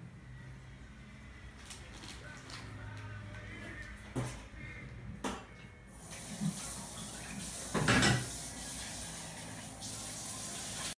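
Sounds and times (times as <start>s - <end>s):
running water hissing: 5.9s - 11.0s.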